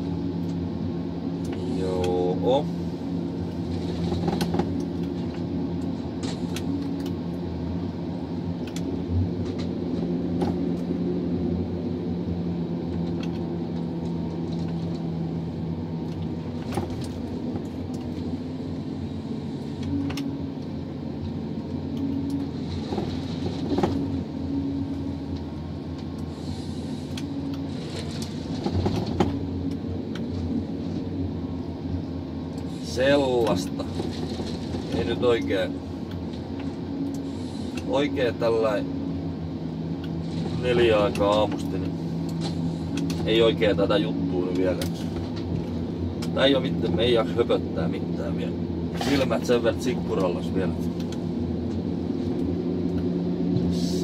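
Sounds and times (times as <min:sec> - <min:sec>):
diesel engine and hydraulics: 0:00.0 - 0:54.0.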